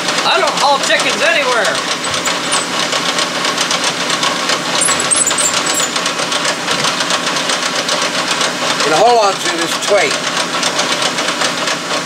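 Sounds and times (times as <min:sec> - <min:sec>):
metal lathe clattering: 0:00.9 - 0:03.8, 0:04.4 - 0:07.9
fast even ticking: 0:01.9 - 0:02.9, 0:04.8 - 0:06.0.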